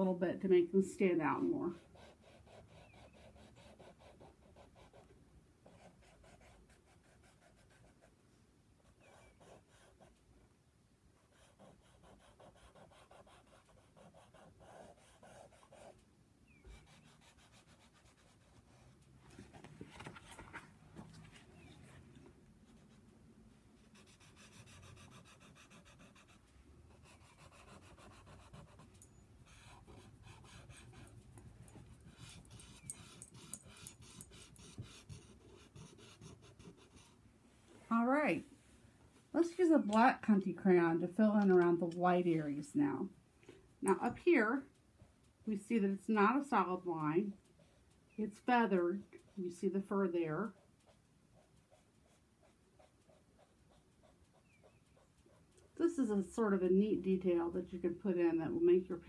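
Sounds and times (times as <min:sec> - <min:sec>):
pastel scratching on paper: 0:01.8 - 0:05.0, 0:11.2 - 0:16.0, 0:16.6 - 0:19.0, 0:23.8 - 0:31.1.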